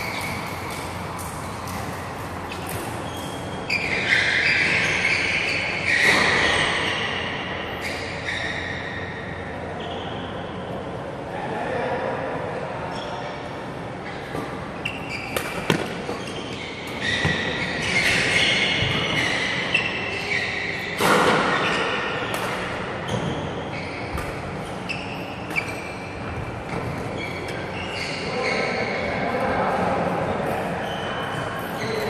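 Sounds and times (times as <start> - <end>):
court shoes squeaking: 0.0 - 10.9, 12.9 - 32.0
racket striking shuttlecock: 15.3 - 16.2, 22.3 - 22.8.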